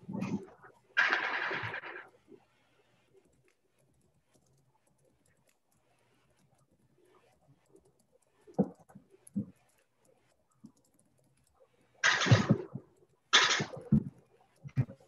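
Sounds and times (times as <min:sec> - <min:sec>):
typing on a computer keyboard: 0:03.2 - 0:06.7, 0:07.4 - 0:15.0.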